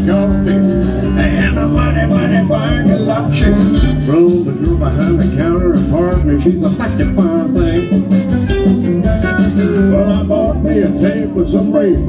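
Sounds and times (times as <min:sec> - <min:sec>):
drums: 0:00.0 - 0:12.0
electric guitar lead: 0:00.0 - 0:12.0
upright bass: 0:00.0 - 0:12.0.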